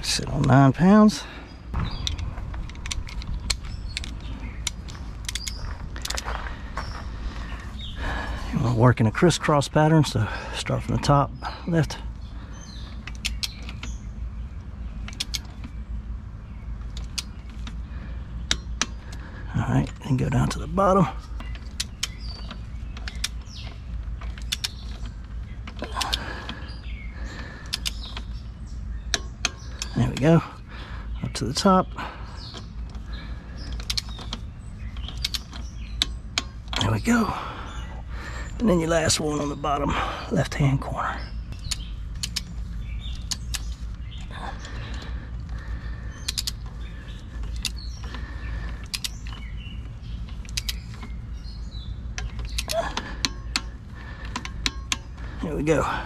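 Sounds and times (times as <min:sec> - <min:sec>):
tool creaks and squeaks: 0:00.3 - 0:07.8, 0:18.4 - 0:39.6, 0:40.7 - 0:56.0
torque wrench clicks: 0:01.8 - 0:06.2, 0:13.0 - 0:14.0, 0:15.0 - 0:15.7, 0:16.9 - 0:17.8, 0:18.4 - 0:19.2, 0:21.3 - 0:26.8, 0:27.6 - 0:28.5, 0:32.4 - 0:37.0, 0:41.5 - 0:49.5, 0:50.2 - 0:51.2, 0:52.1 - 0:55.2.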